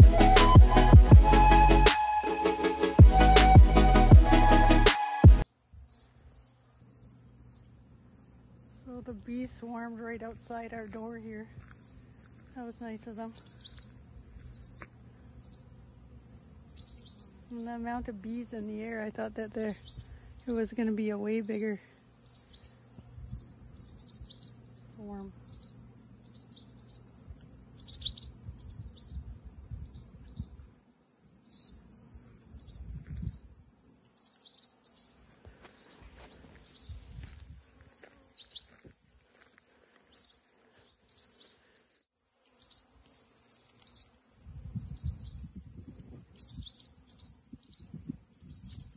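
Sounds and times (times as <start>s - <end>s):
crickets chirping: 5.9s - 48.9s
wind rumble on microphone: 23.0s - 23.5s, 28.4s - 30.7s, 32.5s - 33.5s, 36.8s - 37.7s, 44.4s - 46.8s, 47.5s - 48.9s.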